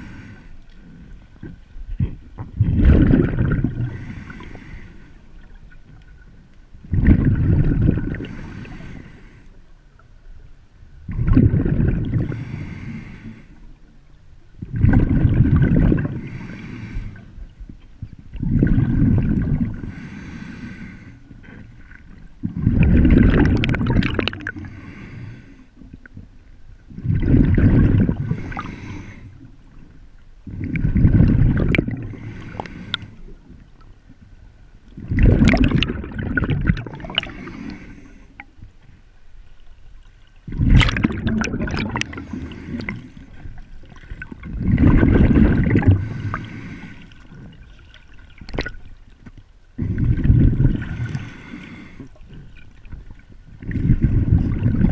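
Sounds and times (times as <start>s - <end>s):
breathing through snorkel: 0.0s - 1.1s, 3.8s - 5.3s, 8.0s - 9.6s, 12.1s - 13.6s, 16.1s - 17.4s, 19.7s - 21.7s, 24.2s - 25.8s, 27.0s - 29.4s, 30.7s - 33.3s, 36.6s - 38.5s, 40.5s - 43.5s, 45.6s - 47.5s, 49.8s - 52.4s
water gurgling: 1.4s - 4.6s, 6.8s - 9.0s, 11.0s - 12.8s, 14.6s - 17.0s, 18.3s - 20.2s, 21.8s - 25.0s, 26.9s - 29.1s, 30.4s - 33.0s, 34.9s - 38.5s, 40.4s - 49.1s, 49.8s - 54.9s.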